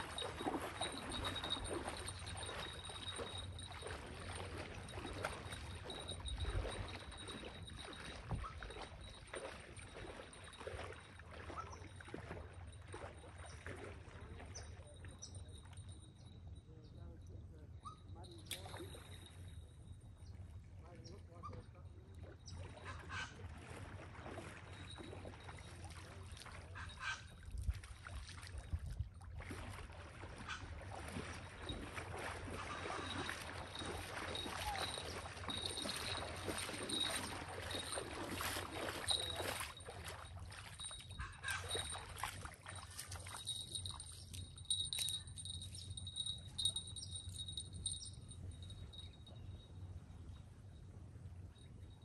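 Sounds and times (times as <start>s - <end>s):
person wading through water: 0.0s - 15.9s, 21.5s - 47.4s
small waves lapping: 0.0s - 16.0s, 18.2s - 47.4s
faint high tone: 32.6s - 36.3s.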